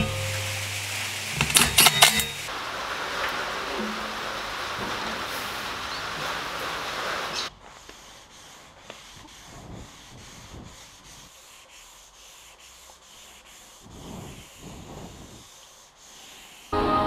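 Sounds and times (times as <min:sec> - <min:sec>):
sandpaper rubbing wood: 0:07.0 - 0:16.8.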